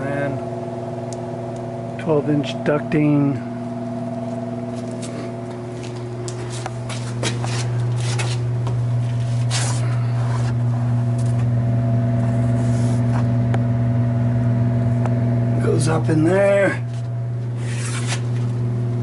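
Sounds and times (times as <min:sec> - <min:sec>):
exhaust fan humming: 0:00.0 - 0:19.0
light scrapes and clicks: 0:16.9 - 0:18.5.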